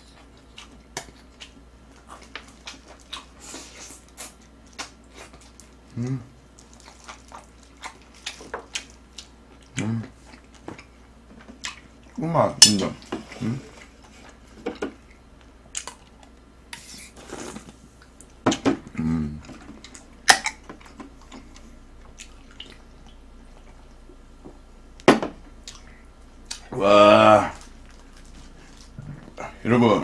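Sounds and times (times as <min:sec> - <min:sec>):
chewing: 0:00.0 - 0:12.2, 0:13.0 - 0:16.4, 0:17.1 - 0:24.6, 0:25.4 - 0:26.8, 0:27.4 - 0:29.6
murmured mouth sounds: 0:05.9 - 0:06.4, 0:09.7 - 0:10.4, 0:13.3 - 0:13.9, 0:18.8 - 0:24.5, 0:25.4 - 0:29.7.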